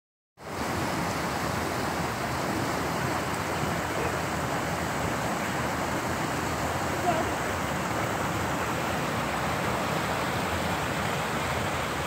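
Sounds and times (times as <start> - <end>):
waterfall rushing: 0.4 - 12.0.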